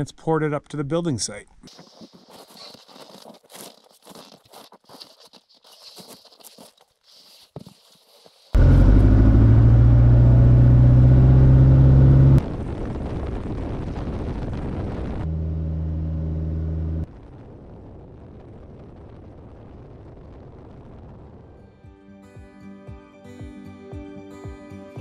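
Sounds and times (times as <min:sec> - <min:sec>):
propeller plane engine drone: 0:08.6 - 0:12.4, 0:15.3 - 0:17.1
faint steady rumble: 0:08.6 - 0:12.6, 0:15.2 - 0:17.1.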